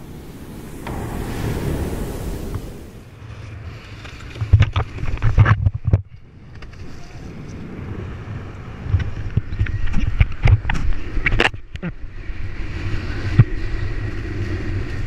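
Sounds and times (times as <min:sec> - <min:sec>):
wind buffeting microphone: 0:00.0 - 0:05.1.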